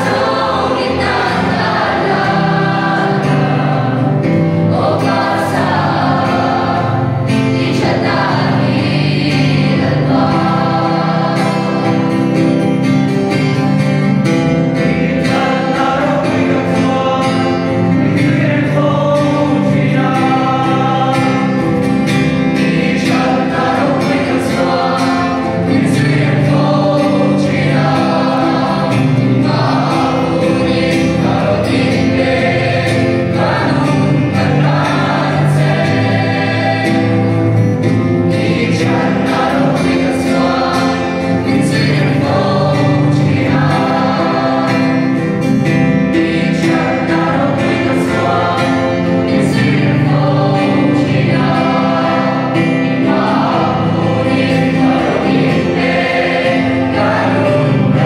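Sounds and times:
acoustic guitar: 0:00.0 - 0:58.0
choir singing in parts: 0:00.0 - 0:58.0.

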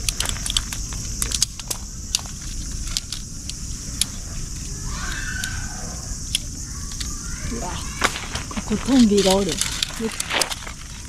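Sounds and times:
high-pitched background hiss: 0:00.0 - 0:11.0.

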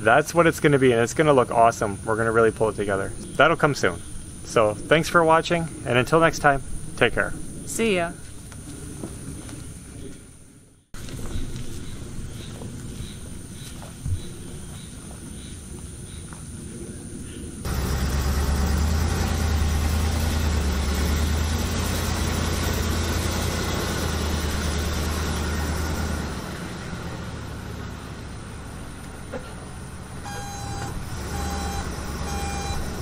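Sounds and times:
heavy vehicle engine rumbling: 0:17.5 - 0:33.0
reversing alarm beeping: 0:30.2 - 0:33.0.

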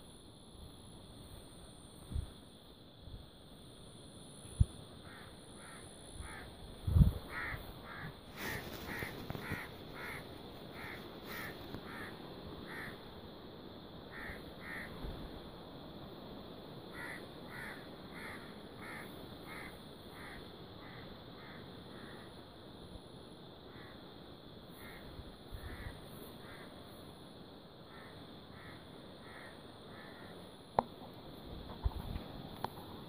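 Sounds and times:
crows cawing: 0:05.0 - 0:06.5, 0:07.3 - 0:13.0, 0:14.1 - 0:15.0, 0:16.9 - 0:22.3, 0:24.8 - 0:26.7, 0:27.9 - 0:30.4.

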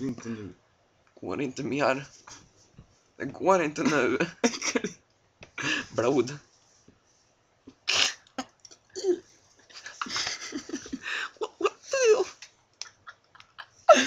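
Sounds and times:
young men laughing: 0:03.8 - 0:05.0, 0:09.7 - 0:14.0.

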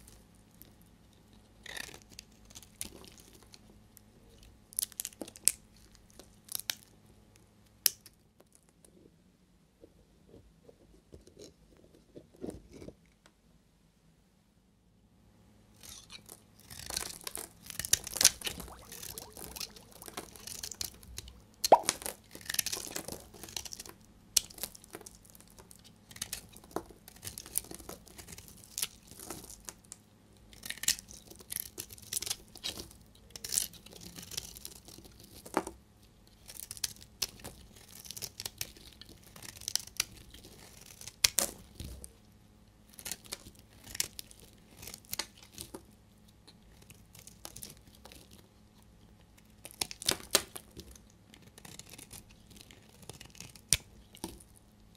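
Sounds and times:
knife scraping soap: 0:01.1 - 0:03.4, 0:15.8 - 0:18.5, 0:49.1 - 0:54.5
soap flakes cracking: 0:04.4 - 0:06.9, 0:15.8 - 0:35.8, 0:36.4 - 0:42.1, 0:42.9 - 0:45.9, 0:49.2 - 0:54.6.

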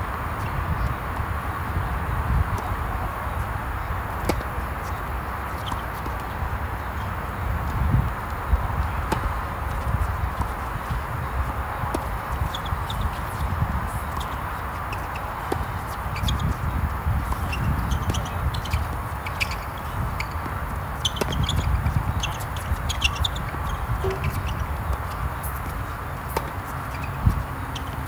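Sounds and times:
tennis balls struck with rackets: 0:04.2 - 0:04.6, 0:08.9 - 0:09.8, 0:17.2 - 0:27.8
shoe scuffs on hard court: 0:09.1 - 0:28.0.

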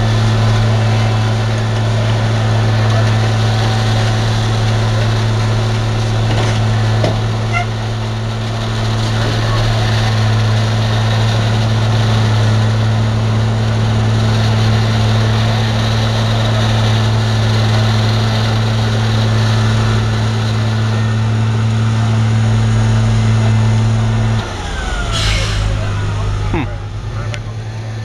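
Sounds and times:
diesel engine humming: 0:00.0 - 0:28.0
paving work noise: 0:00.0 - 0:28.0.

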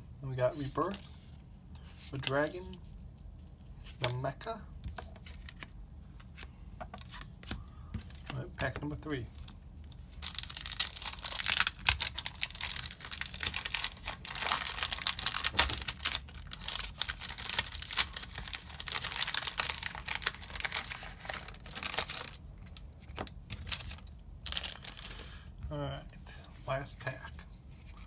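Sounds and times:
cards being handled: 0:03.8 - 0:25.1
foil wrapper crinkling and tearing: 0:10.1 - 0:25.2.

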